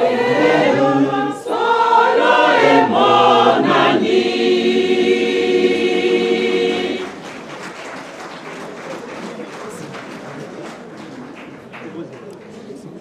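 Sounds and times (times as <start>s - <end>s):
choir singing: 0.0s - 8.0s
faint hall noise: 0.0s - 13.0s.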